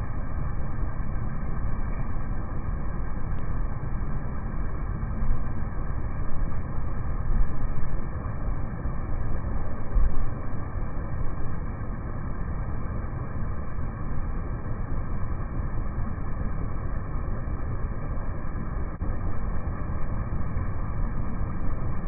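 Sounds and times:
air conditioner unit fan droning: 0.0 - 22.0.

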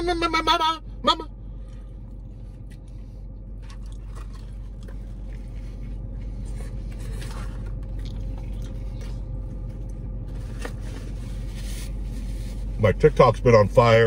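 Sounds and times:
low hum inside car: 0.0 - 14.0
man chewing food: 1.5 - 10.8.

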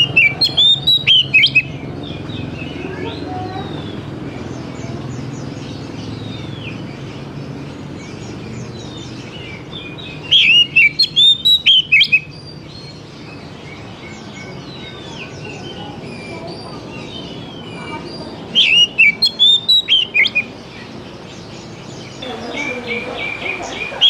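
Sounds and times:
faint high bird chirps: 0.0 - 5.3, 8.1 - 20.9
low steady background noise: 0.0 - 24.0
songbird singing gliding notes: 0.0 - 24.0.

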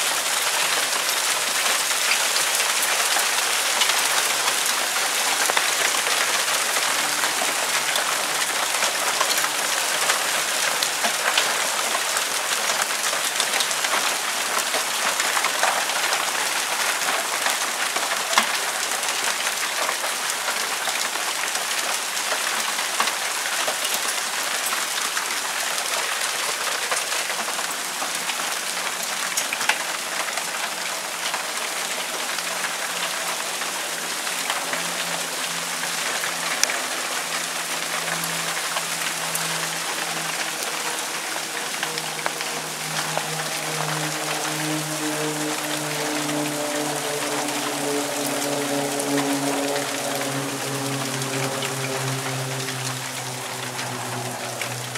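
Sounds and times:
hail and rain falling: 0.0 - 54.9.

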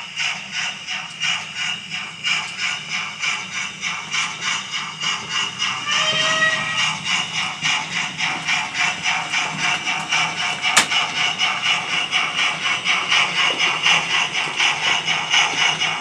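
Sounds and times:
model steam locomotive chuffs: 0.0 - 16.0.

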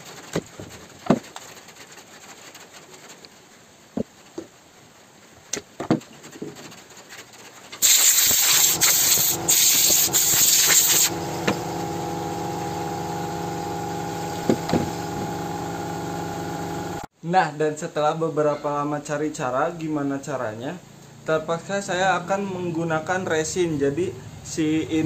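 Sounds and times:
loud hiss: 7.8 - 15.5.

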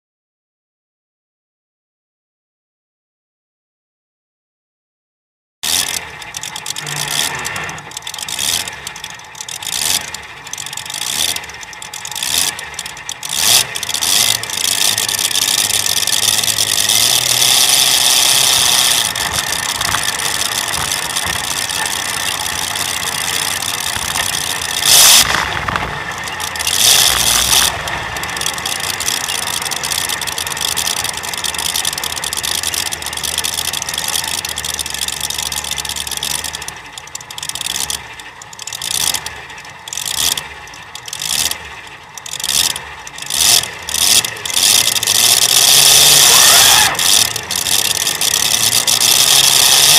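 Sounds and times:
tractor engine revving: 5.6 - 49.9.

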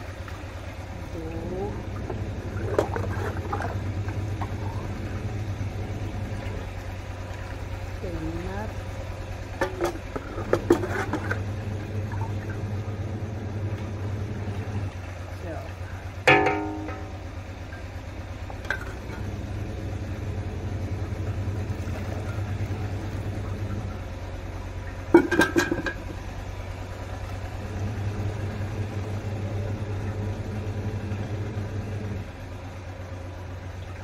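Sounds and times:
mug clanking against metal bucket: 9.6 - 11.4, 16.3 - 17.3, 25.0 - 26.2.

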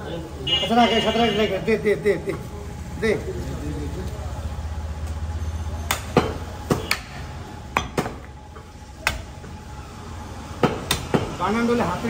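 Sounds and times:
cleaver chopping on wooden block: 5.9 - 7.2.

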